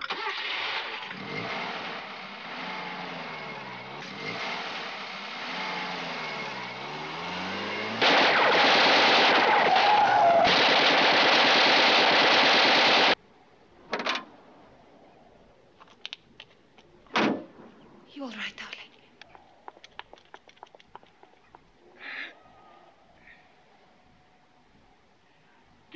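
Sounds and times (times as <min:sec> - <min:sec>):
automatic gunfire: 0:07.9 - 0:13.2.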